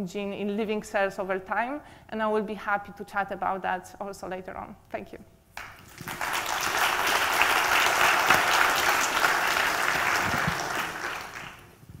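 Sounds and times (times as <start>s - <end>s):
audience applauding: 5.6s - 11.7s.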